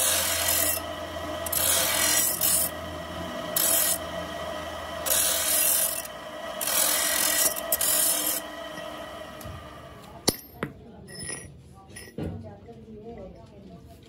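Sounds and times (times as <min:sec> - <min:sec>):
cut-off wheel grinding steel: 0:00.0 - 0:10.3
spinning wheel and motor whine: 0:00.0 - 0:10.3.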